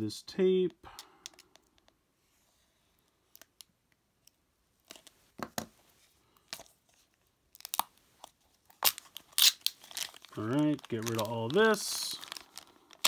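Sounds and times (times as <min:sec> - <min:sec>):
box cutter slitting tape: 0:08.8 - 0:09.8.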